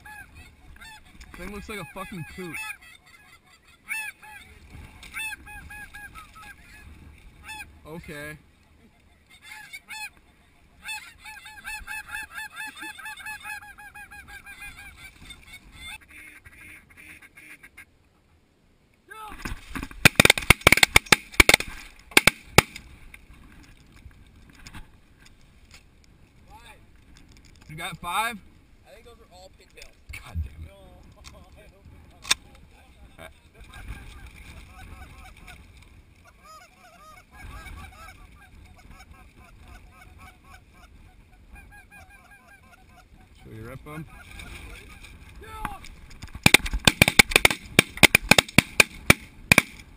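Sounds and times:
geese honking: 0:00.0 - 0:08.2, 0:08.9 - 0:17.9, 0:33.6 - 0:35.6, 0:36.2 - 0:45.2
snow goose calls: 0:00.0 - 0:08.2, 0:08.9 - 0:17.9, 0:33.7 - 0:35.6, 0:36.2 - 0:45.2
wind rumble on microphone: 0:30.1 - 0:32.8.

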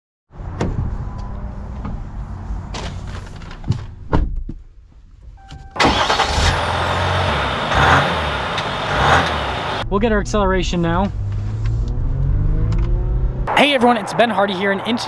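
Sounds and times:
short tone: 0:05.4 - 0:05.8
diesel engine hum: 0:05.5 - 0:15.0.

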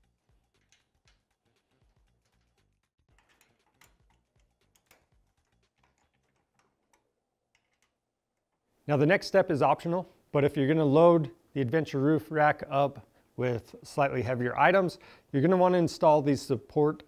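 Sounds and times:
faint clicks of bolts and tools: 0:00.0 - 0:08.7.

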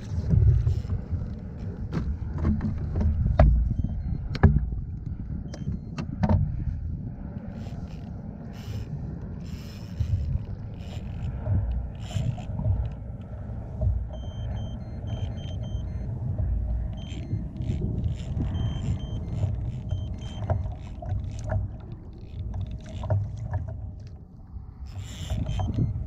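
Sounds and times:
water washing against hull: 0:00.0 - 0:26.0
wind on microphone: 0:00.0 - 0:26.0
knocks and clicks: 0:01.9 - 0:04.7, 0:13.8 - 0:24.1
short high beeps: 0:14.2 - 0:16.2, 0:16.9 - 0:17.6, 0:18.3 - 0:20.8.

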